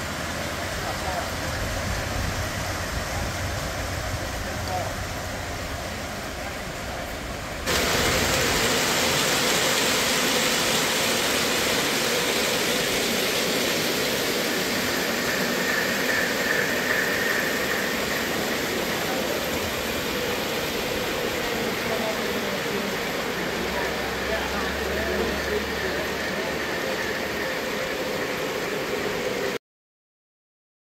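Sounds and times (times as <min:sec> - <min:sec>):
faint high whine: 0:00.0 - 0:29.6
model train wheels rattling on track: 0:12.1 - 0:23.6.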